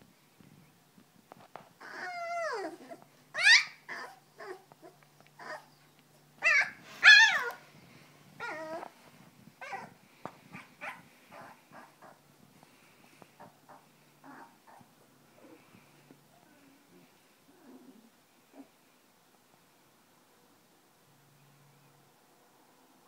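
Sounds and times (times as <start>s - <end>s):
puppy whining and crying: 1.8s - 12.2s, 13.4s - 18.7s.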